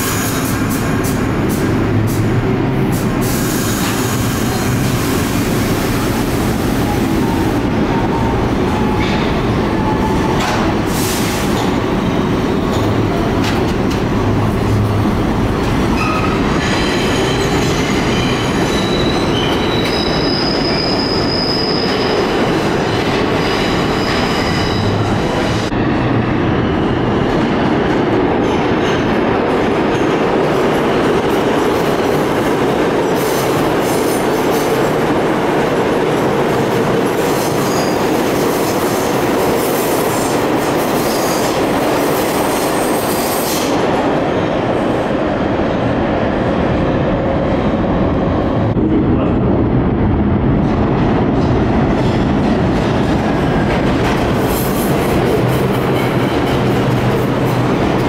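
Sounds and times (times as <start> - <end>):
subway train rumbling: 0.0 - 58.0
high-pitched wheel squeal: 16.0 - 22.3.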